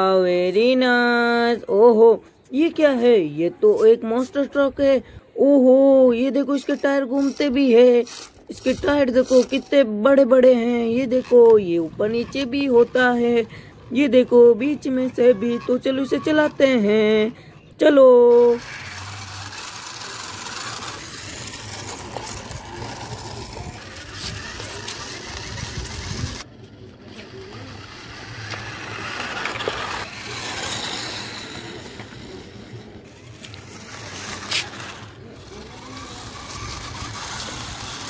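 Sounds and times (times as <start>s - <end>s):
toy car motors whirring: 6.0s - 38.0s
tyres on concrete: 18.3s - 38.0s.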